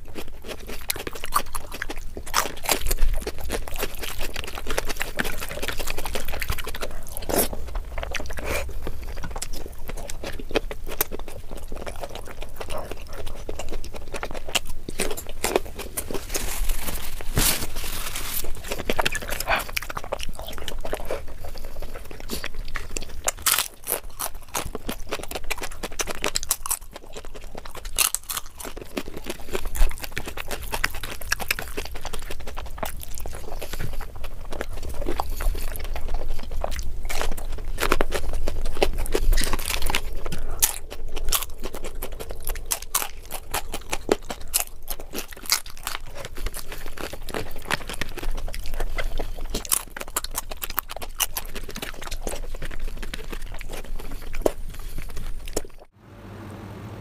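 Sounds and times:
person chewing and crunching: 0:00.0 - 0:55.9.

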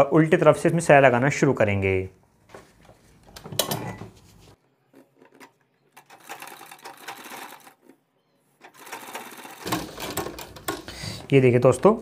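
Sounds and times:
sewing machine stitching: 0:05.3 - 0:08.0, 0:08.6 - 0:10.9.

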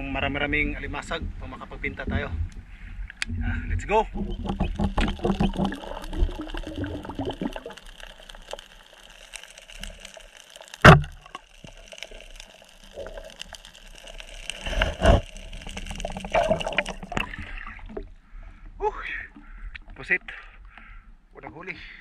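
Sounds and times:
water gurgling underwater: 0:02.1 - 0:18.2
small clicks: 0:04.2 - 0:17.4
loud thud: 0:10.8 - 0:11.2.

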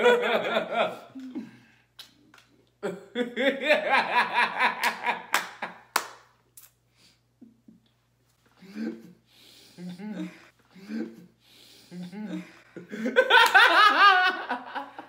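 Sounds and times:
man laughing hard: 0:00.0 - 0:01.2, 0:02.8 - 0:05.4, 0:12.3 - 0:15.0
hand claps: 0:04.8 - 0:06.4, 0:13.3 - 0:13.8.

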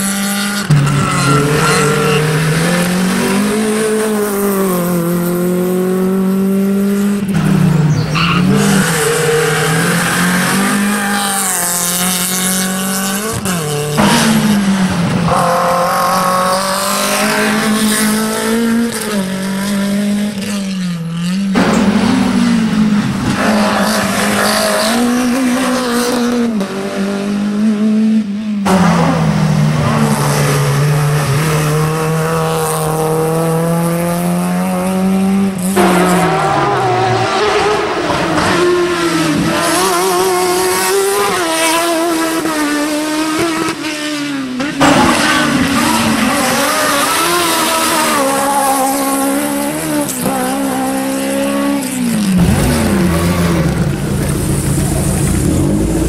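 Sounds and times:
racing car engines revving: 0:00.0 - 0:56.0
tyre squeal: 0:00.6 - 0:02.8, 0:07.9 - 0:11.3.

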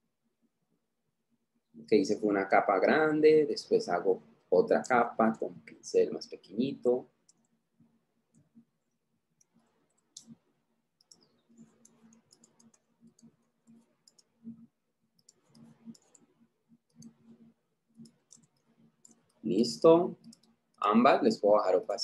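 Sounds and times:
computer mouse clicking: 0:07.2 - 0:07.6, 0:08.3 - 0:20.9.

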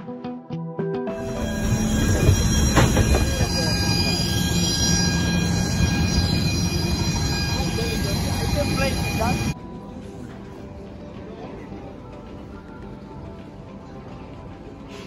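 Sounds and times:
high steady tones: 0:01.1 - 0:09.6.

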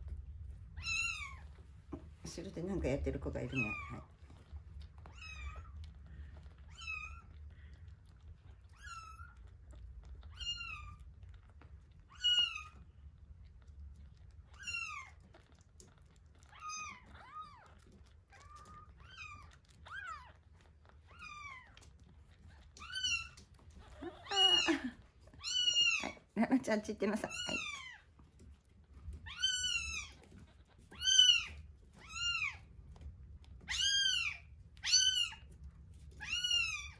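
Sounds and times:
kitten mewing: 0:22.8 - 0:26.4.

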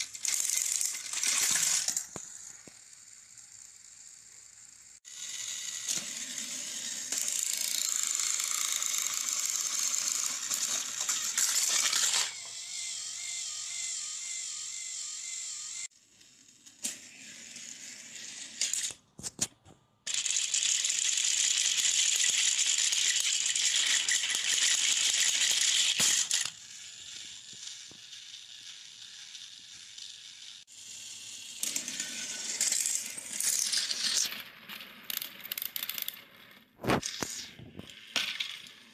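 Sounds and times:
toy train motors whirring: 0:00.0 - 0:19.5, 0:20.1 - 0:38.9.

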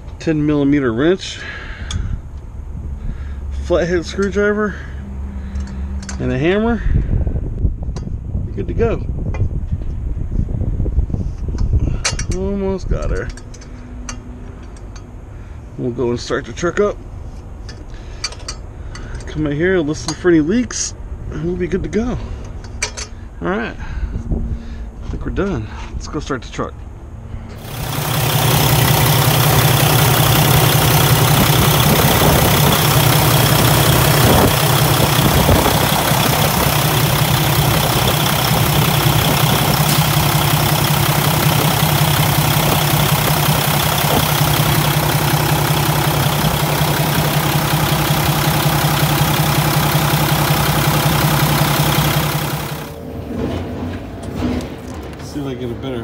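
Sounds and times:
diesel truck engine idling: 0:27.6 - 0:53.1.

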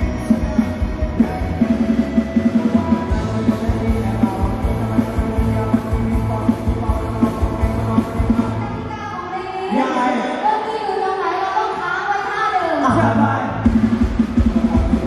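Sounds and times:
steady drum beat: 0:00.0 - 0:08.6, 0:13.0 - 0:15.0
live band music through pa: 0:00.0 - 0:10.8, 0:12.7 - 0:15.0.

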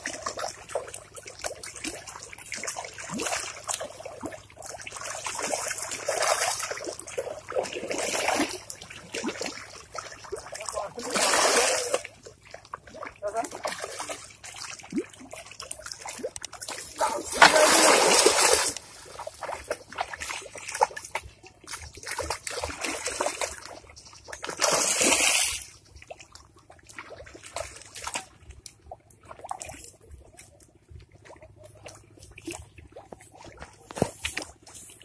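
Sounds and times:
net splashing into water: 0:00.0 - 0:26.3
water sloshing and trickling: 0:00.0 - 0:35.0.

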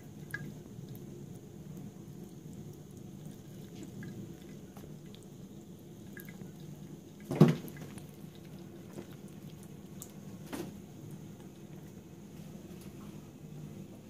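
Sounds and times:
water trickling from tap: 0:00.0 - 0:10.3.

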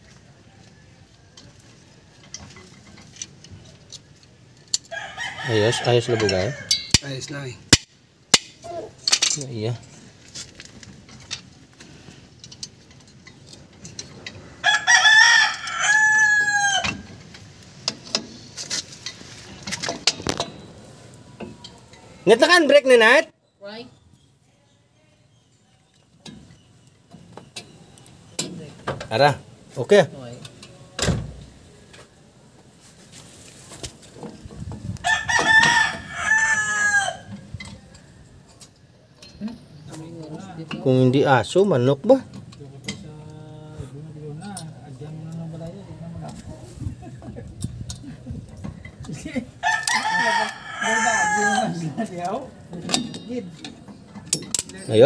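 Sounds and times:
rooster crowing: 0:00.2 - 0:01.9, 0:04.8 - 0:06.9, 0:14.5 - 0:17.1, 0:35.0 - 0:37.4, 0:49.6 - 0:52.1
faint clicks of metal parts: 0:01.3 - 0:05.0, 0:06.0 - 0:14.5, 0:37.3 - 0:43.4, 0:47.5 - 0:50.6, 0:52.0 - 0:55.0.

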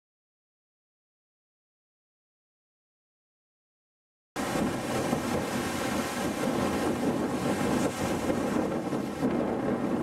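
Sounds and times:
ocean surf on beach: 0:04.4 - 0:10.0
wind buffeting microphone: 0:04.4 - 0:10.0.

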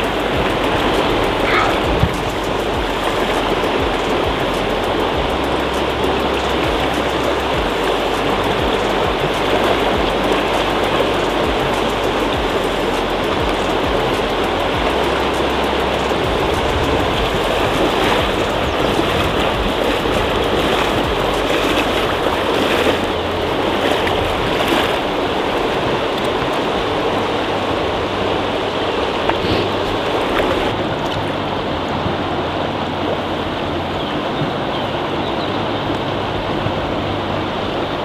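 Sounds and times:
river rushing: 0:00.0 - 0:38.0.

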